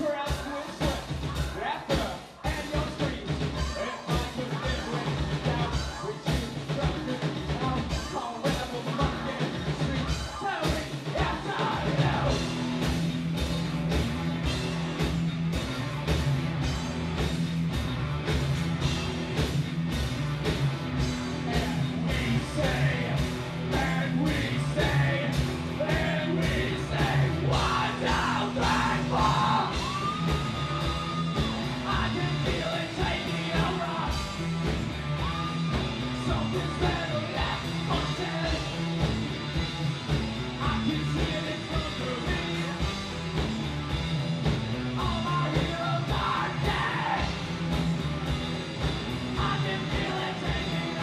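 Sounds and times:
live band playing: 0.0s - 51.0s
person singing: 49.4s - 51.0s.

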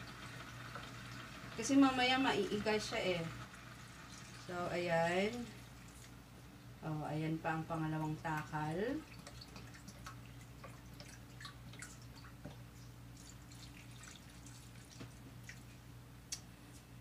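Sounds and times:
liquid drips and trickles: 5.1s - 6.2s, 8.4s - 15.8s.

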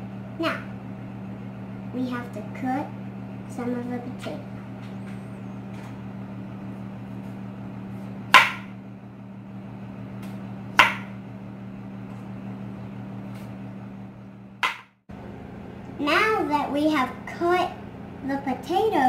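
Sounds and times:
steady low hum: 0.0s - 19.0s
knife knocking on cutting board: 8.4s - 8.7s, 10.8s - 11.1s, 14.6s - 14.8s
knife cutting potato: 10.2s - 11.1s.

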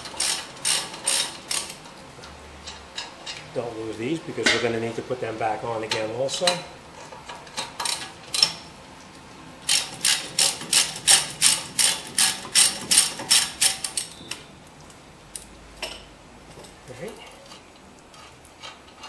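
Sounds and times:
hand ratchet clicking: 0.0s - 1.8s, 9.7s - 14.2s.

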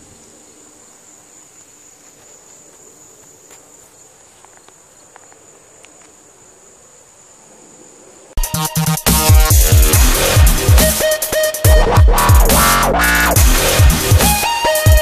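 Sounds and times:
crickets trilling: 0.0s - 8.4s.

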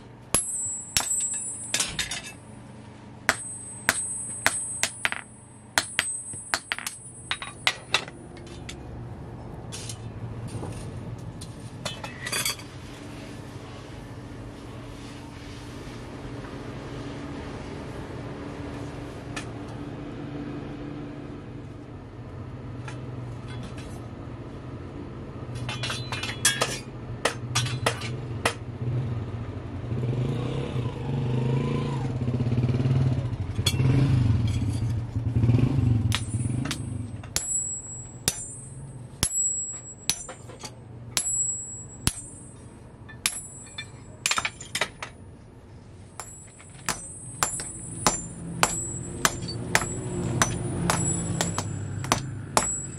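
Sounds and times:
low hum: 0.1s - 9.6s
hammer ringing on anvil: 0.4s - 2.5s, 3.3s - 8.5s, 36.1s - 45.1s, 46.2s - 52.9s
metallic clinks: 0.4s - 2.5s, 3.3s - 8.8s, 36.1s - 45.1s, 46.2s - 52.9s.

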